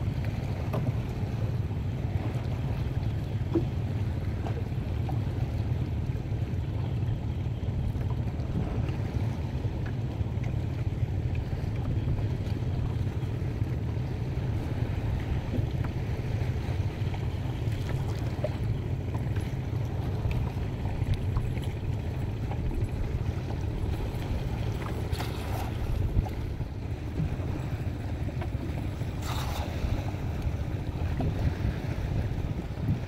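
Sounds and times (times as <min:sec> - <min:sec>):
small waves washing: 0:07.6 - 0:33.0
wind buffeting microphone: 0:11.3 - 0:33.0.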